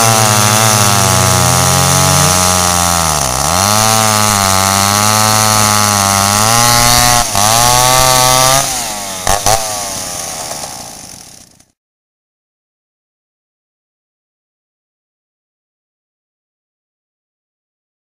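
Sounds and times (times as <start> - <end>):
chainsaws cutting logs: 0.0 - 11.8.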